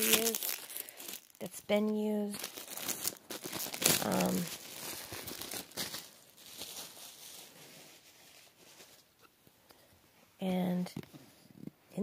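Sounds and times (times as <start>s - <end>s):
plastic shrink-wrap crinkling: 0.0s - 9.3s.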